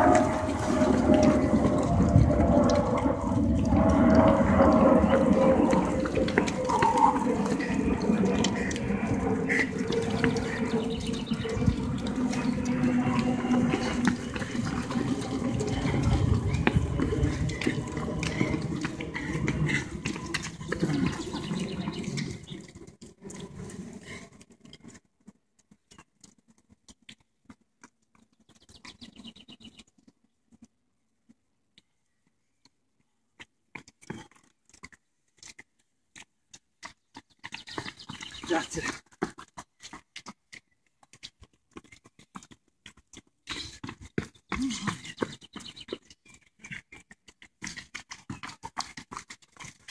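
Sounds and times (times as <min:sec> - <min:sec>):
steady rushing noise: 0:00.0 - 0:24.1
footsteps on brick path: 0:00.0 - 0:49.9.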